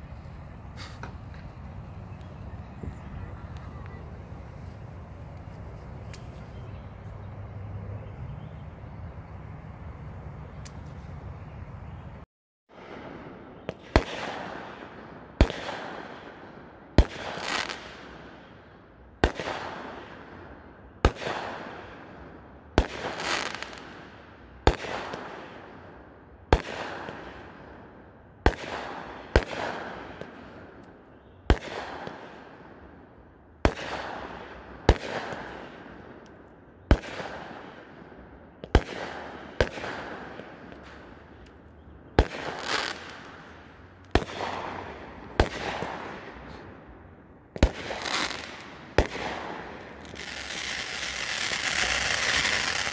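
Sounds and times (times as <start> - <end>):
fireworks bangs: 0.0 - 6.8, 12.8 - 16.3, 36.9 - 41.4, 42.1 - 46.9, 47.6 - 52.9
fireworks crackle: 0.0 - 6.8, 42.1 - 46.7, 47.6 - 52.9.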